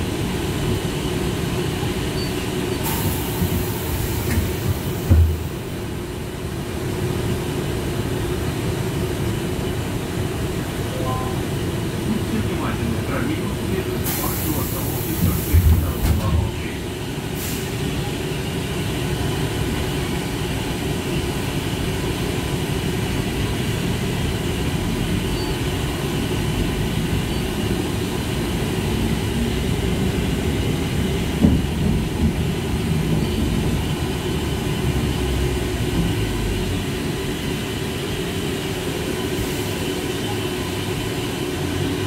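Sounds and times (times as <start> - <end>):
trolleybus running rumble: 0.0 - 42.0.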